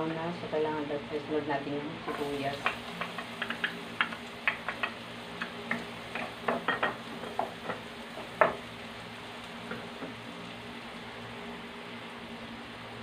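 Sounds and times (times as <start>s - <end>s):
onions and garlic sizzling in a wok: 0.0s - 13.0s
spatula scraping and tapping a pan: 2.1s - 8.6s.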